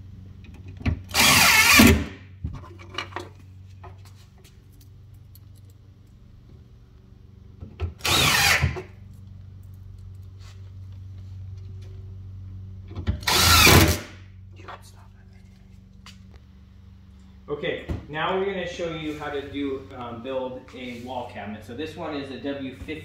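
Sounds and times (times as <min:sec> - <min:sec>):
impact driver driving screws: 0:01.1 - 0:02.1, 0:08.0 - 0:08.9, 0:13.2 - 0:14.1.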